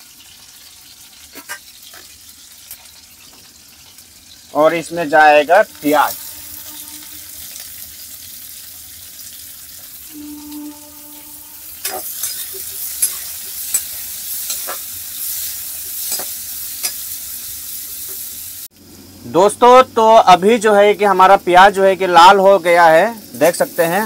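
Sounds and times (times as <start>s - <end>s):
onion sizzling in oil: 0.0s - 24.0s
metal spatula scraping pan: 5.2s - 7.5s, 10.1s - 15.4s.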